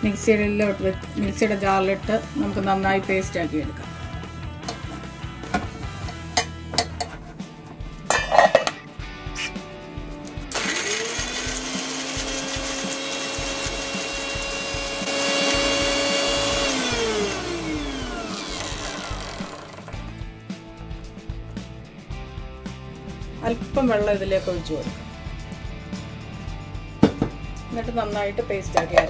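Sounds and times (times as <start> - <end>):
mixer grinder motor whine: 10.5 - 20.1.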